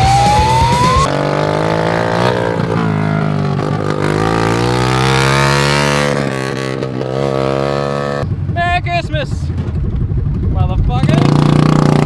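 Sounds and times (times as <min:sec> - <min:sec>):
vehicle engine revving: 0:00.0 - 0:08.5, 0:11.0 - 0:12.0.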